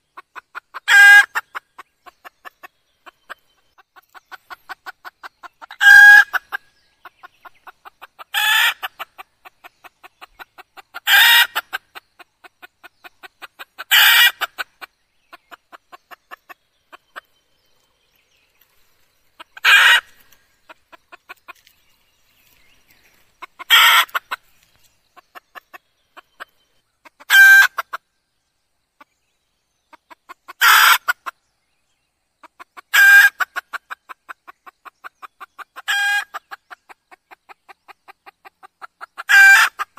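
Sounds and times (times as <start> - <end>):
hen calling loudly: 8.3 - 8.9, 23.5 - 24.4.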